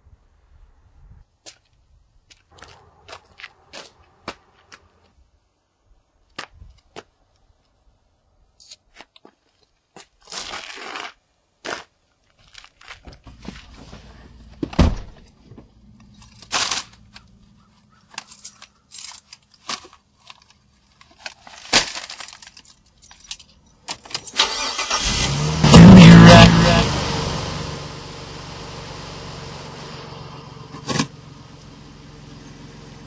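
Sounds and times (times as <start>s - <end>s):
car door shutting: 13.3s - 15.7s
bag crinkling: 16.1s - 24.1s.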